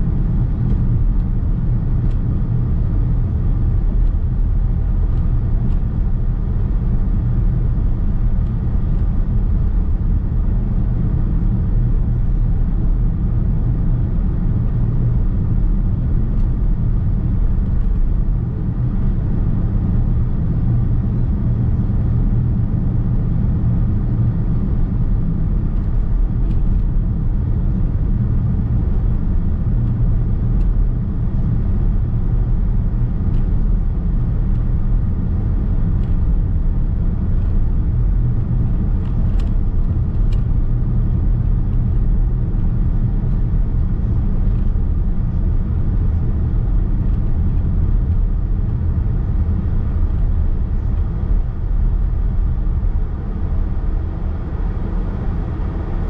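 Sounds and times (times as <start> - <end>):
car driving rumble: 0.0 - 56.0
tyre and road noise: 13.7 - 56.0.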